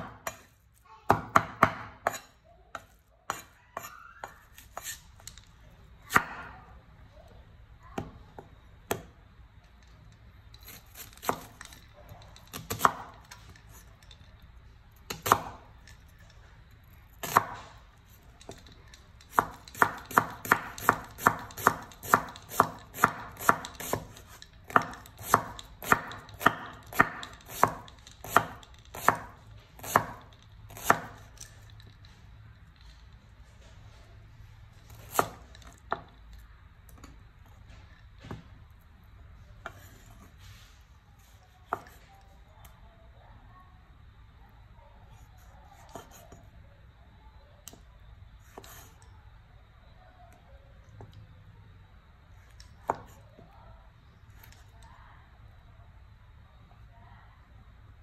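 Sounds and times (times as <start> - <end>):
cleaver chopping on wooden board: 1.1 - 2.2, 19.3 - 31.2.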